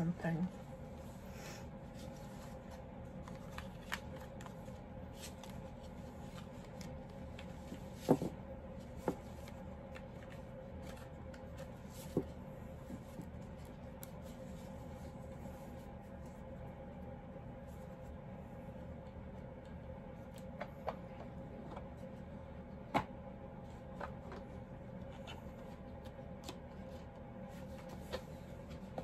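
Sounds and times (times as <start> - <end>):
faint steady hum: 0.0 - 29.0
cards shuffling: 2.3 - 8.3.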